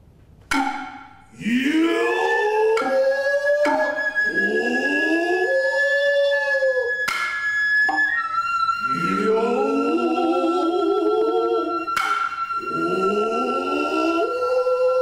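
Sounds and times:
sharp hand-drum strokes: 0:00.5 - 0:05.4, 0:06.4 - 0:09.2, 0:11.8 - 0:12.8
drummers' long rising calls: 0:00.5 - 0:07.2, 0:07.9 - 0:14.4
bamboo flute long high note: 0:01.4 - 0:15.0.

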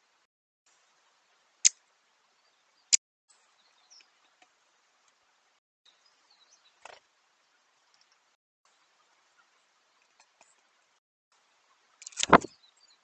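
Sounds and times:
faint high bird chirps: 0:02.3 - 0:04.4, 0:11.6 - 0:13.0.

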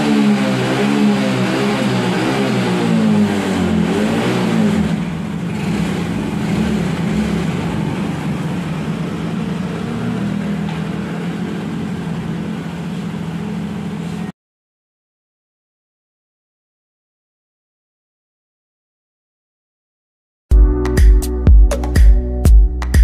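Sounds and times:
scooter engine revving: 0:00.0 - 0:14.2.

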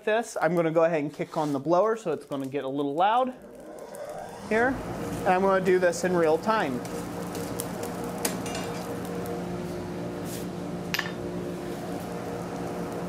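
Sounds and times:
forge blower humming: 0:03.2 - 0:13.0.

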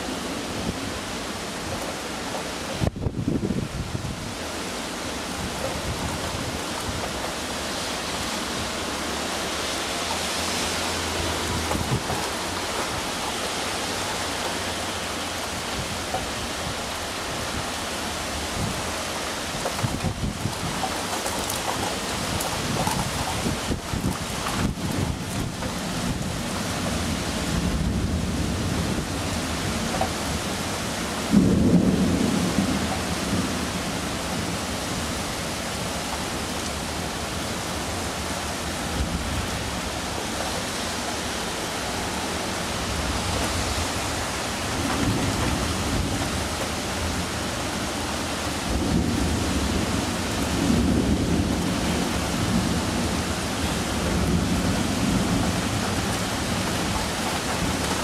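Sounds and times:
steady rain: 0:00.0 - 0:58.0
rolling thunder: 0:31.2 - 0:34.7, 0:48.6 - 0:58.0.

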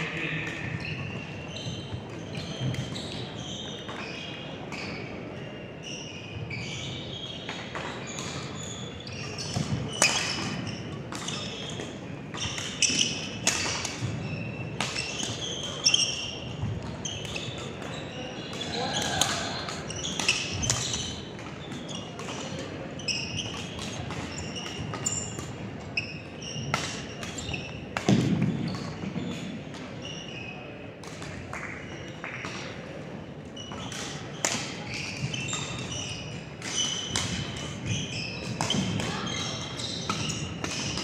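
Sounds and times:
shoes squeaking on court floor: 0:00.0 - 0:41.0
racket hitting shuttlecock: 0:09.4 - 0:17.8, 0:18.5 - 0:22.6, 0:26.6 - 0:29.9, 0:33.7 - 0:41.0.

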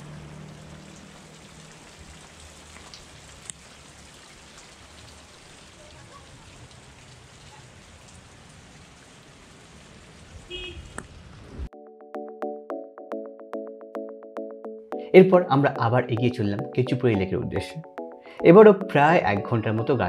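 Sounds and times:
water dripping and trickling: 0:00.0 - 0:11.2
music with a beat: 0:11.8 - 0:20.0.

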